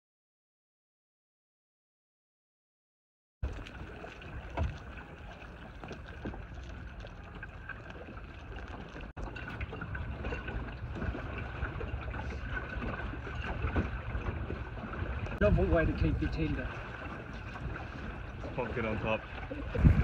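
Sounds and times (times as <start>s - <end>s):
light knocks and splashes: 3.4s - 20.0s
water washing along hull: 3.4s - 20.0s
wind on microphone: 9.6s - 20.0s.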